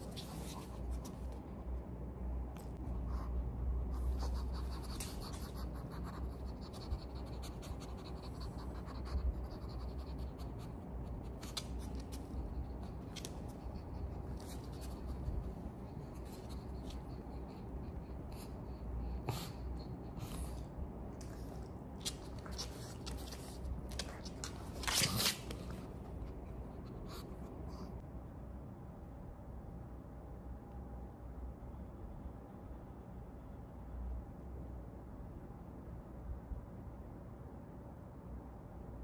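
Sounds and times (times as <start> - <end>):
steady low rumble: 0.0 - 39.0
dog sniffing: 2.8 - 28.0
dog claws clicking on floor: 11.3 - 15.2, 21.2 - 26.0.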